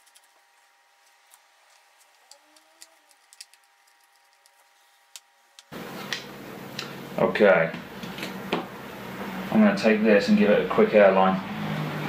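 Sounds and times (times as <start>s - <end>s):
screwdriver and parts clicking: 2.0s - 4.6s.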